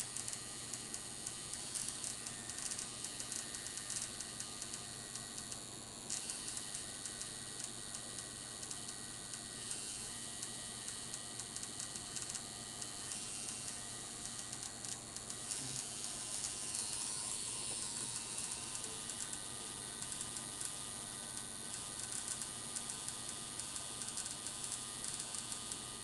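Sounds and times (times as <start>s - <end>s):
tattoo machine buzzing: 0.0s - 26.0s.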